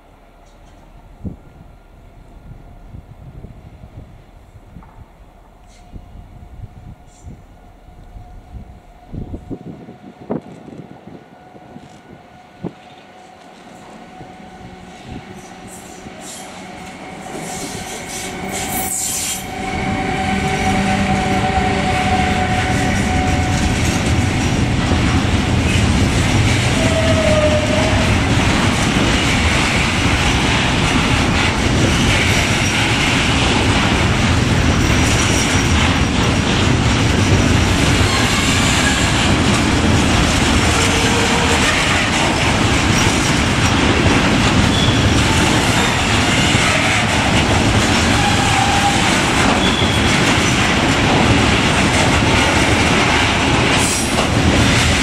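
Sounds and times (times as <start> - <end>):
freight train wheels clattering: 14.7 - 55.0
train wheels squealing: 14.9 - 23.6, 38.0 - 39.2, 44.6 - 47.1, 48.2 - 50.5.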